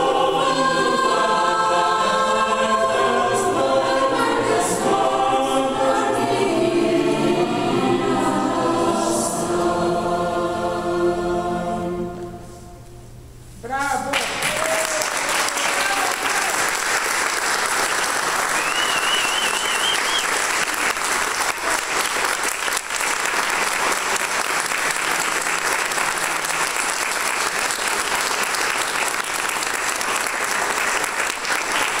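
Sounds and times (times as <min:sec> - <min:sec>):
audience applauding: 0:14.1 - 0:32.0
warbling whistle: 0:18.5 - 0:20.4.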